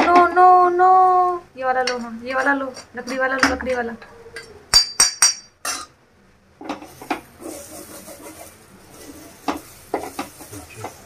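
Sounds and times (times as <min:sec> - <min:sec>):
sharp metallic clink: 0:04.7 - 0:05.9
faint sizzle: 0:06.6 - 0:11.0
wooden spatula scraping pan: 0:06.6 - 0:11.0
spatula tapping pan: 0:09.4 - 0:11.0.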